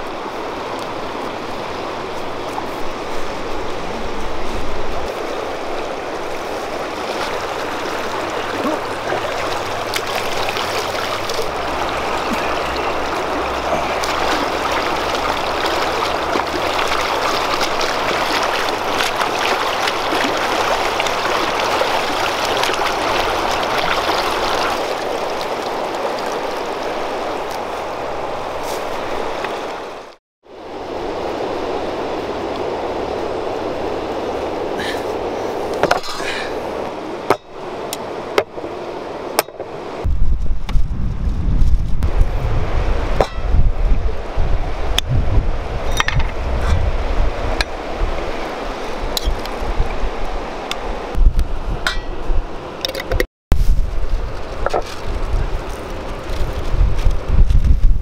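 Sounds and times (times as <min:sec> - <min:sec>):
river rushing: 0:00.0 - 0:40.1, 0:42.0 - 0:53.1
hands splashing in water: 0:13.2 - 0:26.4.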